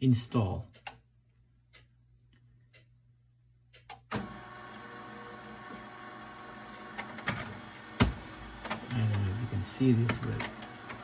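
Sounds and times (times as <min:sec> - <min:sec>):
printer motors and fan whirring: 0:04.0 - 0:11.0
faint printer clicks: 0:06.7 - 0:11.0.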